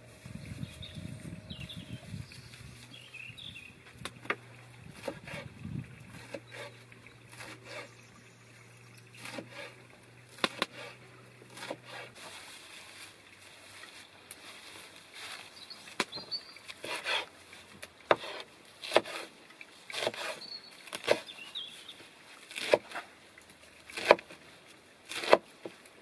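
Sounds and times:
faint low drone: 0:00.0 - 0:03.8
leaves rustling: 0:00.0 - 0:08.0, 0:09.0 - 0:26.0.

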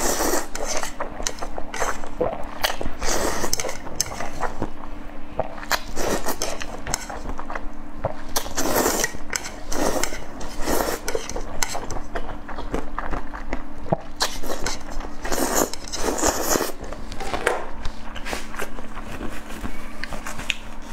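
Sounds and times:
wet noodle slurps: 0:00.0 - 0:04.5, 0:08.3 - 0:11.8, 0:14.2 - 0:16.8.

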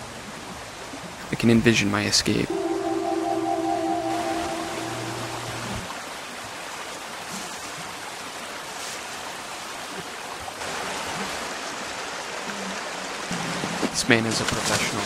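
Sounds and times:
sustained musical chord: 0:02.5 - 0:05.9
stream running over rocks: 0:05.9 - 0:15.0.

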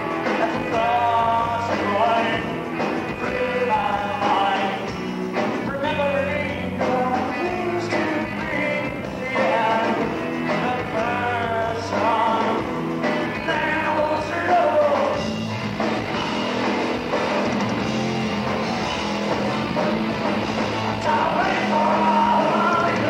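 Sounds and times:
person singing: 0:00.0 - 0:15.2, 0:20.9 - 0:23.0
electric guitar: 0:00.0 - 0:23.0
live rock band playing: 0:00.0 - 0:23.0.

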